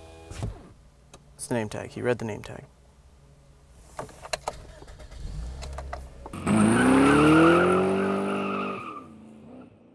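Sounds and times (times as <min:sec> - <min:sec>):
car engine revving: 0:04.6 - 0:08.8
tires squealing: 0:06.3 - 0:09.2.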